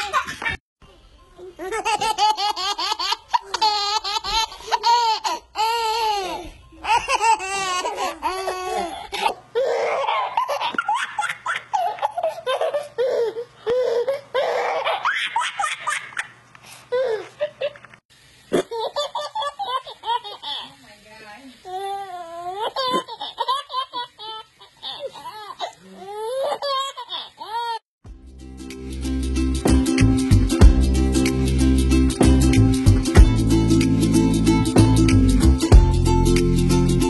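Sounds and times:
babies laughing: 0.0s - 0.6s, 1.4s - 17.8s, 18.5s - 20.8s, 21.7s - 27.8s.

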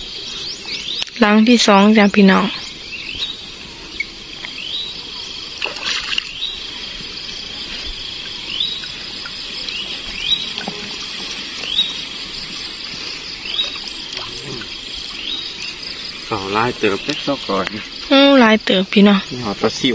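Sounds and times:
water splashing and dripping: 2.4s - 18.1s.

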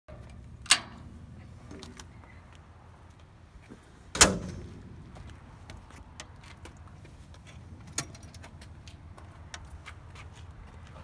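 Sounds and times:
metal door slamming: 4.1s - 4.8s
light footsteps: 4.6s - 11.0s.

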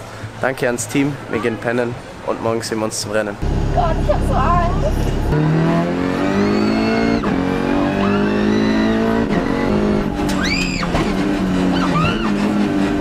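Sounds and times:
race car engine revving: 3.4s - 13.0s.

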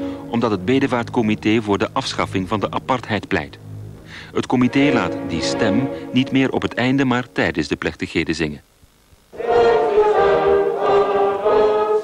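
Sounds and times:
choir singing held notes: 0.0s - 1.6s, 4.3s - 7.4s, 9.3s - 12.0s.

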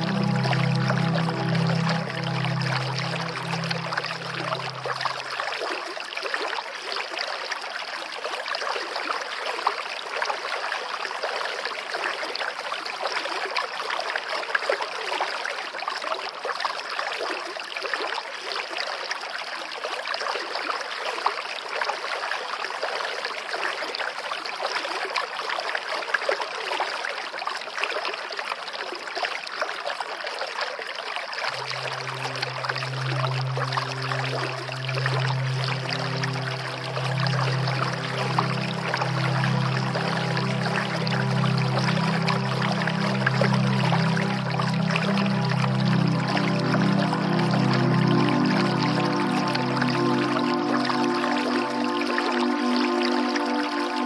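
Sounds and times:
soft music with low held notes: 0.0s - 5.8s, 31.5s - 54.0s
stream water rushing over rocks: 0.0s - 14.6s, 31.2s - 54.0s.

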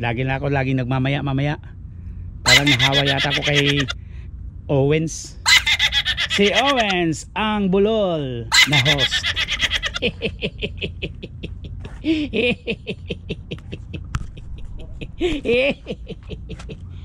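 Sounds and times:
steady low hum: 0.0s - 17.0s
man laughing: 2.5s - 4.0s, 5.5s - 7.1s, 8.5s - 17.0s.

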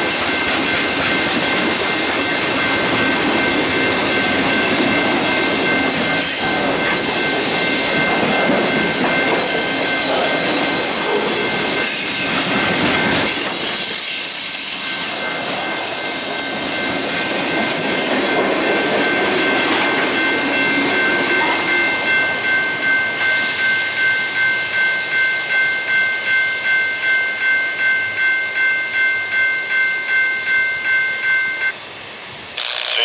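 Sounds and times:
train wheels rumbling on rail: 0.0s - 25.5s
crossing bell ringing: 0.0s - 31.8s
high ringing tones: 0.0s - 31.8s.

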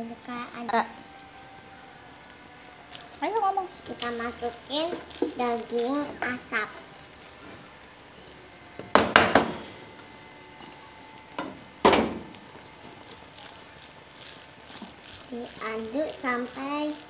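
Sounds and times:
wooden spatula scraping a pan: 3.0s - 8.2s.

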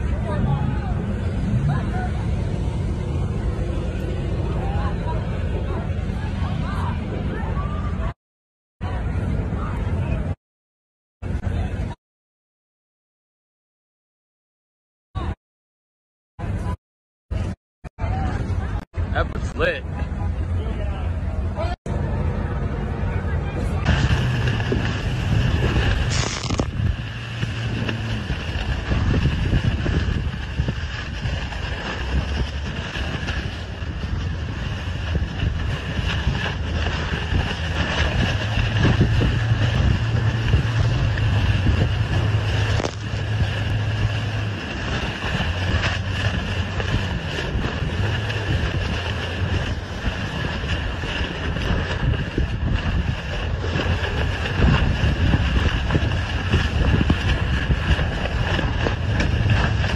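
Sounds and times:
low motor drone: 0.0s - 8.2s, 17.4s - 59.9s
wind buffeting microphone: 21.2s - 59.9s
rushing water: 22.0s - 59.9s.

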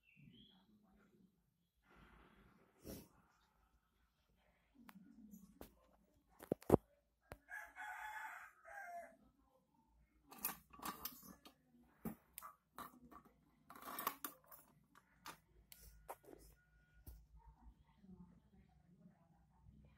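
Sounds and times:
rooster crowing: 7.5s - 9.2s.

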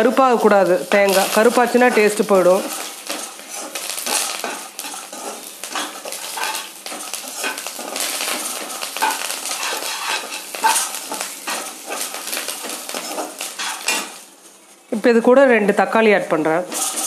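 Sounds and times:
metal spatula scraping metal pan: 1.1s - 14.2s, 16.7s - 17.0s.

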